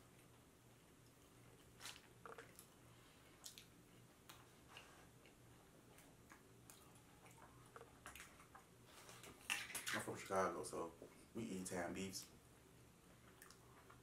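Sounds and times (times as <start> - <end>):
wet chewing clicks and smacks: 0.0 - 10.0, 13.2 - 14.0.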